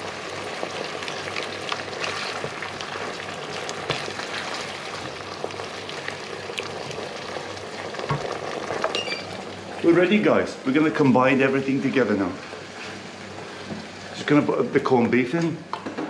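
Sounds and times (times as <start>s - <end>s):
sauce sizzling and bubbling: 0.0s - 15.0s
wooden spoon stirring and scraping: 1.7s - 5.2s, 12.6s - 13.7s.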